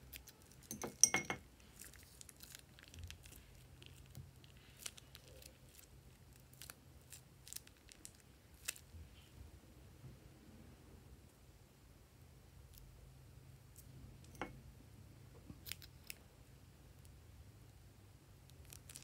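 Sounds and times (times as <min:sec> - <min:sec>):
plastic bag crinkling: 0:01.6 - 0:08.9.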